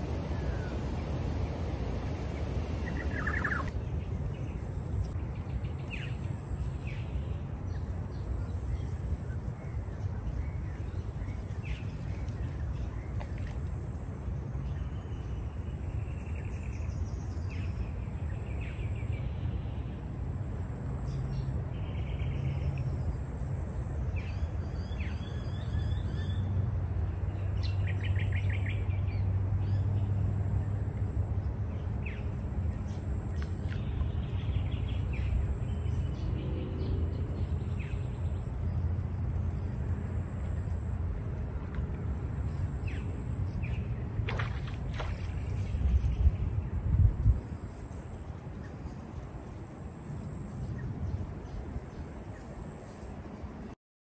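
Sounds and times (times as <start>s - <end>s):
birds chirping and trilling: 0.0s - 3.8s
faint high-pitched whine: 0.0s - 36.1s.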